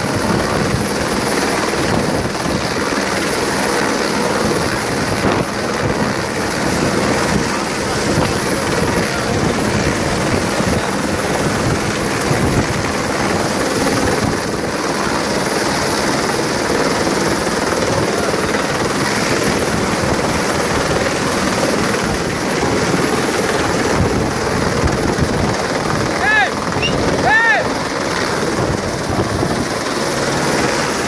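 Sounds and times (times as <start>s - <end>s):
helicopter rotor and turbine: 0.0s - 31.0s.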